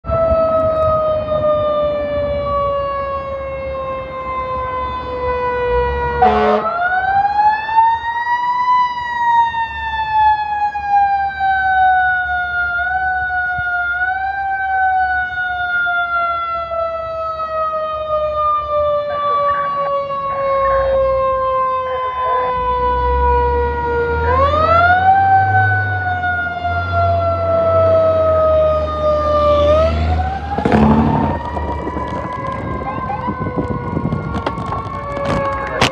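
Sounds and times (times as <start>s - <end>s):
fire truck siren wailing: 0.0s - 35.9s
truck engine rumble: 22.2s - 35.9s.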